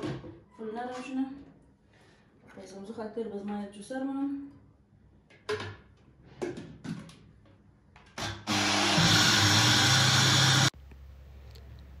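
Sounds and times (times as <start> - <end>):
blender motor grinding: 8.2 - 10.7.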